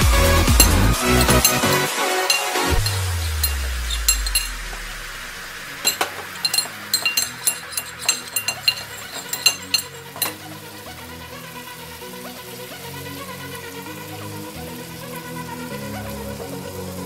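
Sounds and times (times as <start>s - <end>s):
metal spoon clinking in ceramic bowl: 0.5s - 5.0s, 5.8s - 10.8s.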